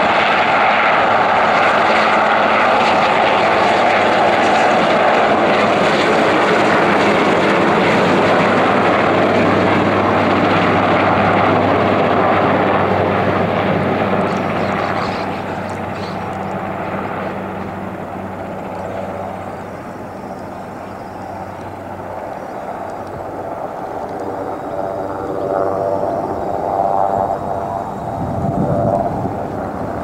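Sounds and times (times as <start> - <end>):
aircraft engine noise: 0.0 - 30.0.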